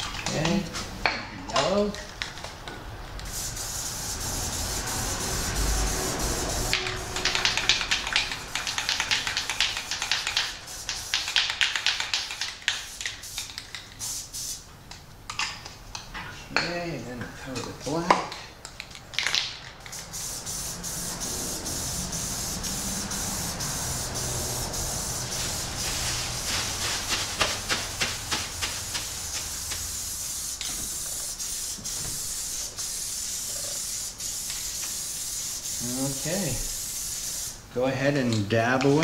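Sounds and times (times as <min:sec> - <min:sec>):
aerosol spray paint hissing: 0:03.2 - 0:14.6, 0:19.7 - 0:37.6.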